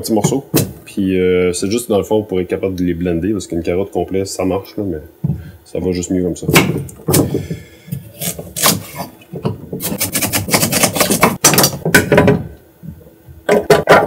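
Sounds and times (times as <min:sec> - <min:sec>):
knife chopping on cutting board: 0:09.8 - 0:11.4.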